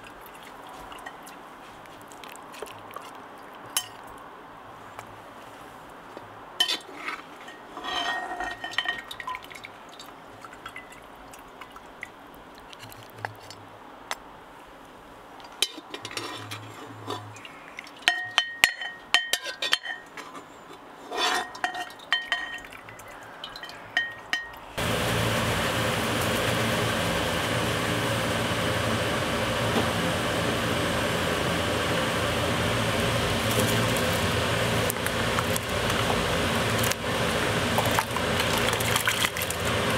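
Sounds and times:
dishes and utensils clinking: 6.6 - 9.5, 18.0 - 20.4, 21.2 - 24.6.

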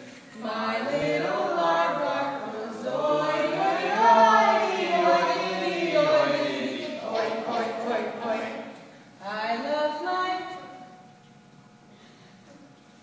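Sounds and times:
voices singing together: 0.0 - 9.8.

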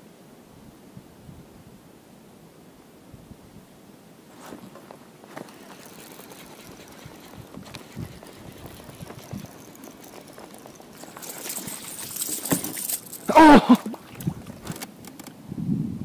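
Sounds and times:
fish splashing in water: 5.4 - 15.0
person shouting: 13.3 - 13.9.

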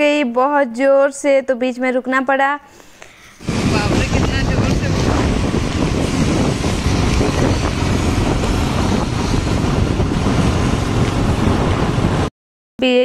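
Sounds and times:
motorcycle engine: 3.4 - 12.3
tyres on wet road: 3.4 - 12.3
wind rushing over microphone: 3.4 - 12.3.

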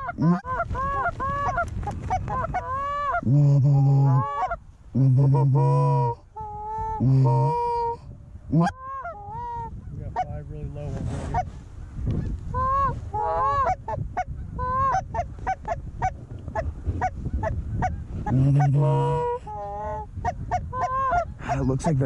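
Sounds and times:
goose clucking: 0.0 - 3.2, 3.8 - 4.6, 12.1 - 22.0
goose honking: 3.8 - 4.6, 12.6 - 14.0.

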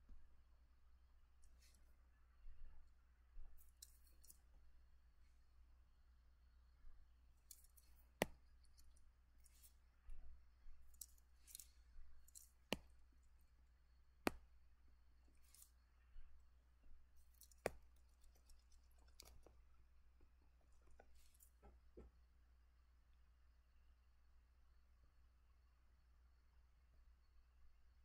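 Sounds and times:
mouse clicks: 17.2 - 19.5.

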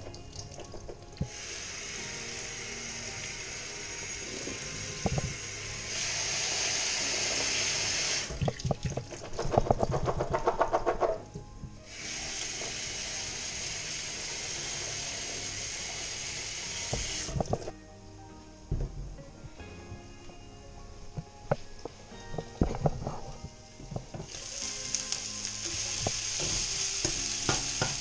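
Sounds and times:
tap water running: 0.0 - 10.6, 11.8 - 17.7, 24.0 - 28.0.

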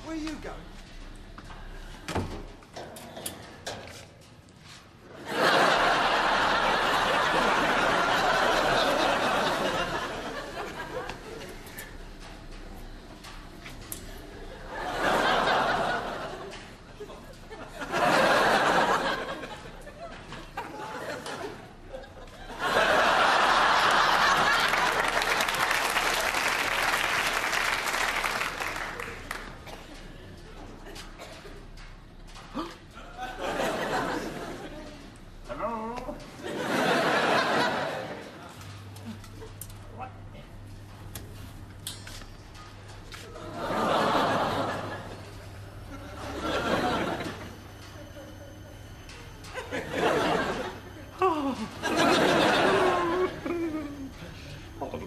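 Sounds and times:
studio audience laughing: 5.1 - 12.0, 14.3 - 31.3, 33.0 - 35.2, 36.4 - 39.6, 43.2 - 54.9
audience applause: 5.3 - 11.1, 22.5 - 29.9.

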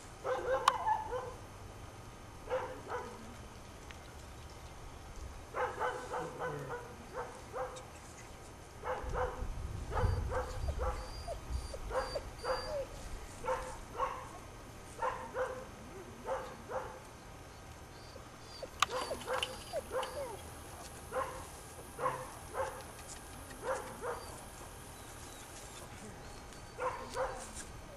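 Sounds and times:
puppy barking high yips: 0.3 - 1.4, 10.0 - 12.9, 18.5 - 20.4, 23.6 - 24.4, 26.6 - 27.6.

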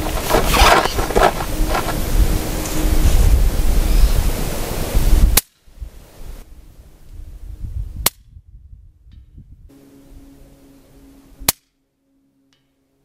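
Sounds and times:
wind buffeting microphone: 0.0 - 10.3.

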